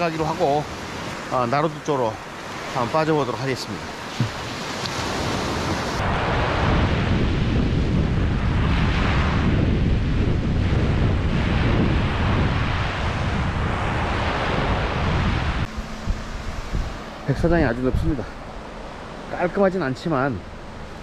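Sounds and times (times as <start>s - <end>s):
small waves breaking on beach: 0.0s - 21.0s
wind rumbling on microphone: 3.9s - 19.3s.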